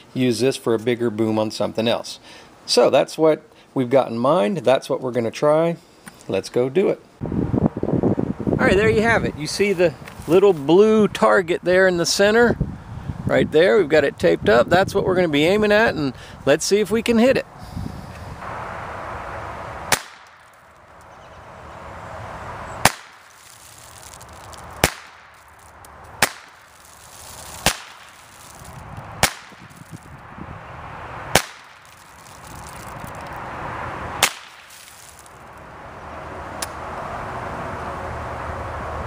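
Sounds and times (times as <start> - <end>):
rifle shots cracking: 19.9 - 20.5, 22.8 - 23.3, 24.8 - 25.4, 26.2 - 26.7, 27.5 - 28.3, 29.2 - 29.7, 31.3 - 31.9, 34.2 - 34.8.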